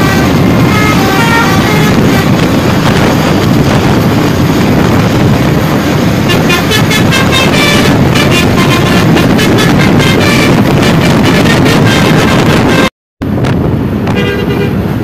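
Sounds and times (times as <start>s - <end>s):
musical air horns playing a tune: 0.0s - 2.8s, 6.2s - 12.9s
road and wind rumble: 0.0s - 15.0s.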